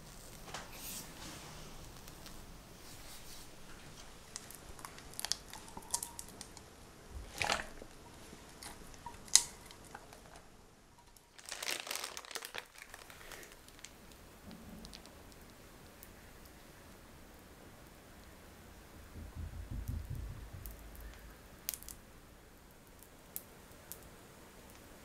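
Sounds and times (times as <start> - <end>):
plastic bag crinkling: 4.3 - 6.5, 7.2 - 14.0.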